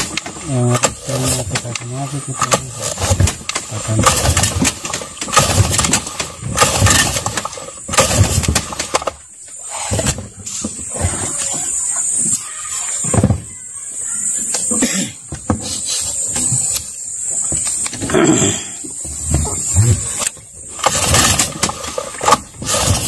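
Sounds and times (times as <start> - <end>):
recoil starter pulls: 0.0 - 11.8, 15.6 - 23.0
outboard motor running: 0.0 - 11.9, 17.4 - 23.0.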